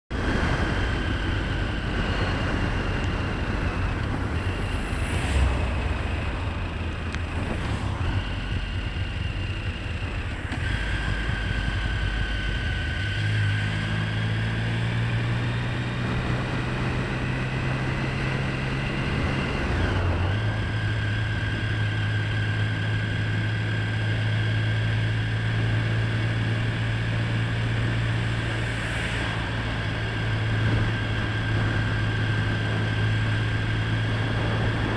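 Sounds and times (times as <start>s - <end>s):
wind noise: 0.1s - 14.5s, 27.4s - 34.9s
motorcycle engine running: 0.1s - 34.9s.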